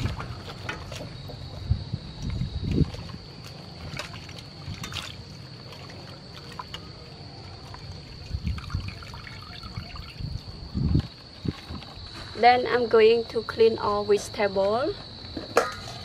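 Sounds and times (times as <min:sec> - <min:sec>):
water sloshing in a metal bowl: 0:00.0 - 0:14.7
water dripping: 0:02.2 - 0:11.6.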